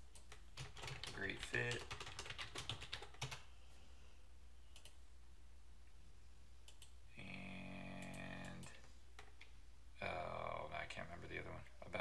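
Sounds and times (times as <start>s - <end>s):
keyboard typing: 0.1s - 3.4s, 4.7s - 5.0s.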